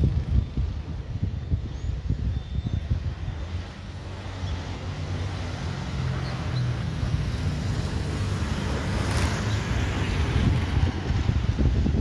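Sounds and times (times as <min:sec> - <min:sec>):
wind buffeting the microphone: 0:00.0 - 0:12.0.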